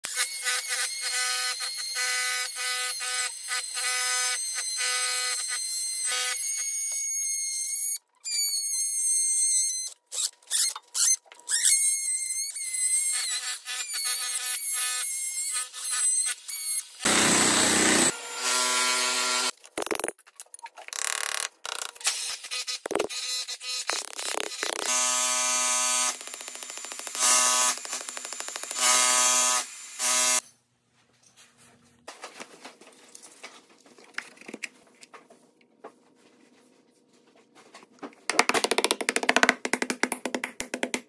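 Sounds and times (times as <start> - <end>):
oscillating multi-tool whine: 0.0 - 19.5, 22.0 - 30.4.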